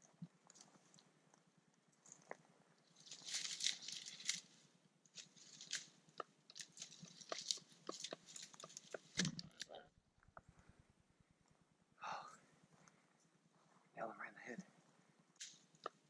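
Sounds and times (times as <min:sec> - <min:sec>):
footsteps crunching dry grass: 0:02.9 - 0:09.2.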